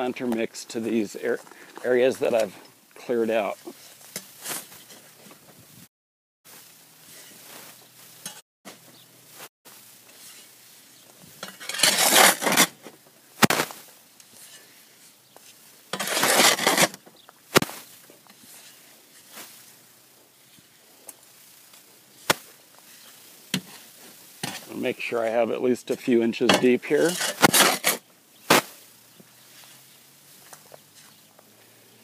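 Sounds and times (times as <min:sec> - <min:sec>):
shovel scraping in wheelbarrow: 0:03.4 - 0:05.2, 0:11.3 - 0:14.7, 0:15.5 - 0:17.0, 0:17.6 - 0:19.7, 0:22.2 - 0:28.9
shovel clanking against wheelbarrow: 0:11.4 - 0:12.7, 0:15.9 - 0:17.0, 0:25.9 - 0:28.6.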